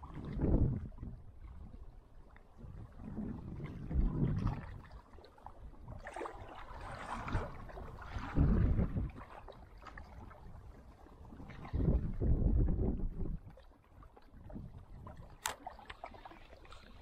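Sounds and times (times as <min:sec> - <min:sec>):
low rumble on microphone: 0:00.0 - 0:05.0, 0:05.6 - 0:13.6
water lapping against boat hull: 0:00.0 - 0:17.0.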